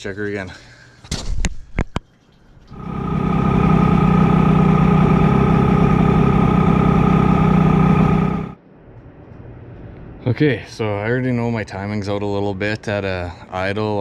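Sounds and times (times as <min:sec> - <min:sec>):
outboard motor idling: 0:02.7 - 0:08.6.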